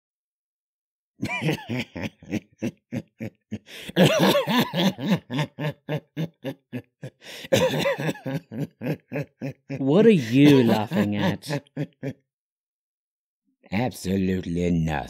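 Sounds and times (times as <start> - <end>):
man laughing in short bursts: 1.2 - 12.2.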